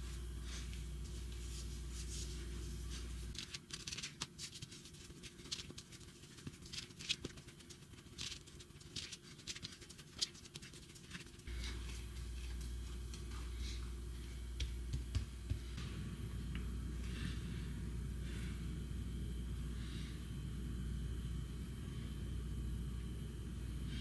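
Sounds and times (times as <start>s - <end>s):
low steady hum: 0.0s - 24.0s
hands patting dough: 0.4s - 17.6s.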